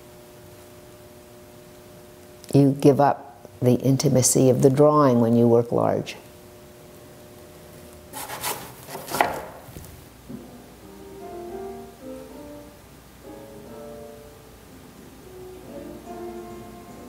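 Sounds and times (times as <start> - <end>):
scraping and rubbing: 8.1 - 9.5
soft instrumental music: 10.3 - 17.0.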